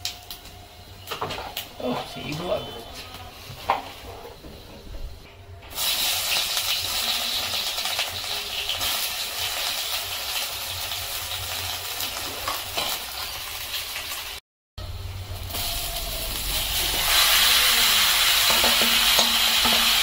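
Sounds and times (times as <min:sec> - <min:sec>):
onions sizzling in hot oil: 0:05.7 - 0:20.0.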